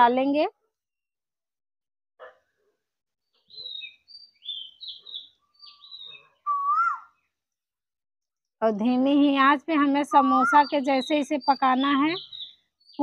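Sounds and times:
birds chirping: 3.2 - 7.4, 9.4 - 13.0.

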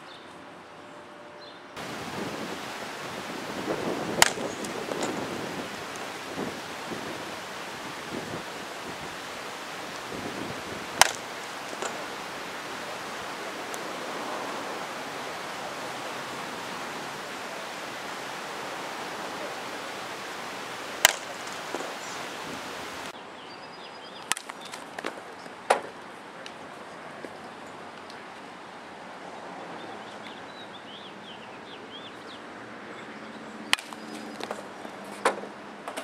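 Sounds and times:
wind hiss: 1.8 - 23.2
bat hitting ball: 3.9 - 14.1, 17.7 - 22.4, 33.7 - 34.6.

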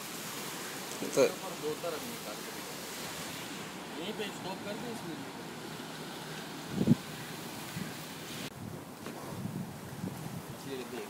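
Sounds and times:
high hiss: 0.0 - 8.5
sea waves: 0.0 - 11.0
wind on microphone: 6.4 - 11.0.

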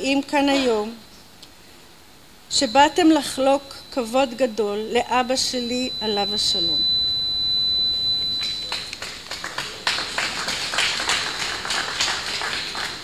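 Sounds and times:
audience applause: 8.7 - 13.0.

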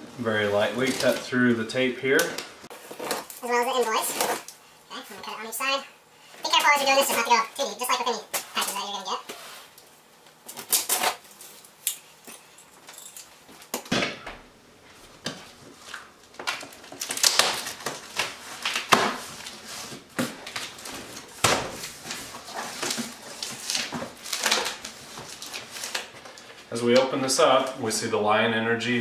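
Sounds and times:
cardboard rustling and creaking: 0.5 - 1.4, 15.4 - 26.7
scissors slicing packing tape: 10.5 - 11.2.

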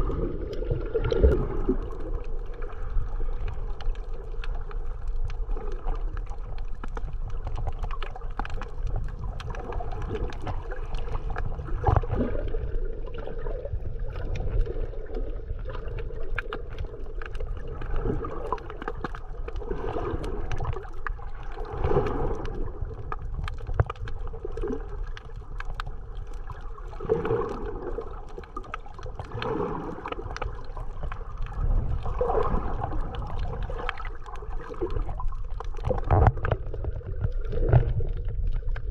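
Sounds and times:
underwater rumble: 0.0 - 38.9
water gurgling: 0.0 - 38.9.

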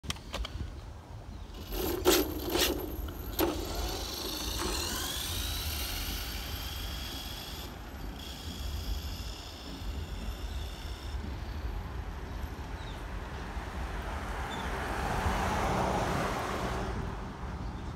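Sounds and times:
electric motor whine: 1.5 - 11.5.

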